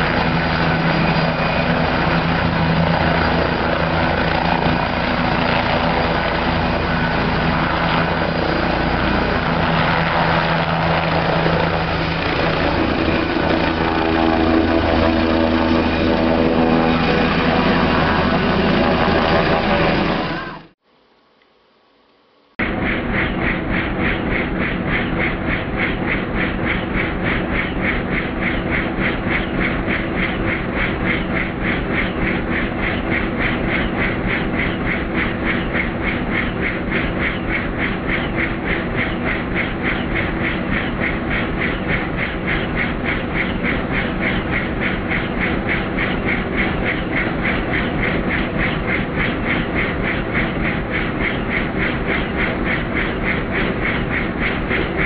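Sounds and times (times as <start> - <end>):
helicopter rotor beat: 0.0 - 20.8, 22.6 - 55.0
engine drone: 0.0 - 55.0.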